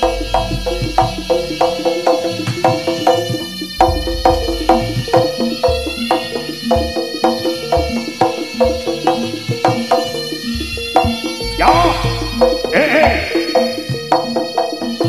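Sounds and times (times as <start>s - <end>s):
deep drum beats: 0.0s - 1.8s, 2.4s - 13.6s
gamelan ensemble music: 0.0s - 15.0s
ringing pitched percussion: 0.0s - 15.0s.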